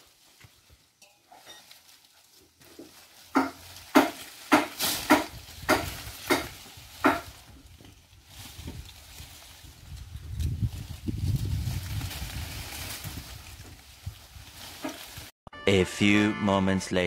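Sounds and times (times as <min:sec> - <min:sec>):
branches rustling and snapping: 0:00.0 - 0:15.3.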